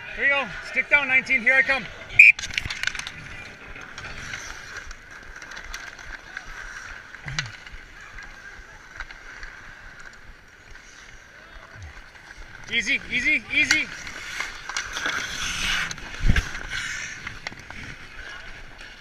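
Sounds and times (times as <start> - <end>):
skate blades scraping ice: 2.4 - 19.0
stick and puck clacks: 11.9 - 19.0.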